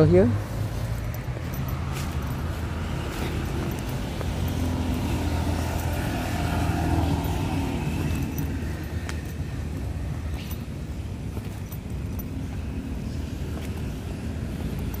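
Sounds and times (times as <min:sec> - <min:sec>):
cars passing: 0:00.0 - 0:15.0
motorbike passing: 0:00.0 - 0:15.0.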